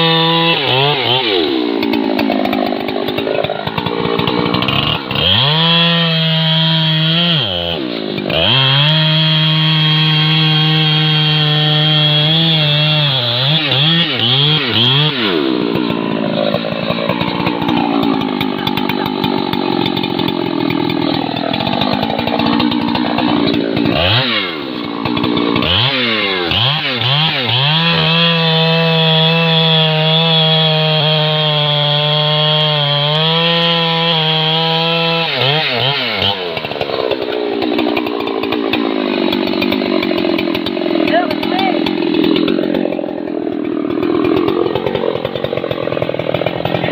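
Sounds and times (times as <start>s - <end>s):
chainsaw cutting tree trunk: 0.0s - 46.9s.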